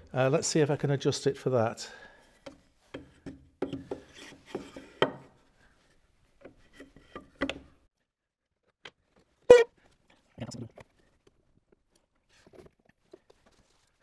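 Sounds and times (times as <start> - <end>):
wooden knocks and clicks: 6.4 - 7.7.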